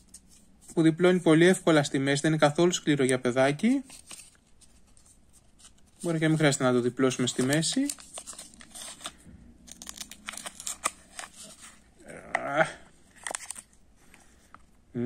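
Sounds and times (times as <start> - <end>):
plastic cup crinkling: 7.1 - 12.5, 13.1 - 13.8.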